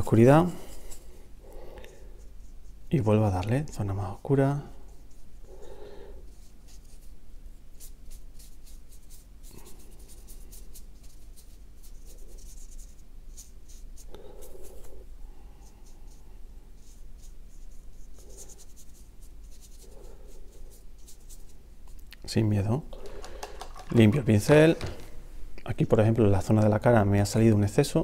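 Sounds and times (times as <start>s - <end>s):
paintbrush stroking on paper: 6.2s - 21.9s.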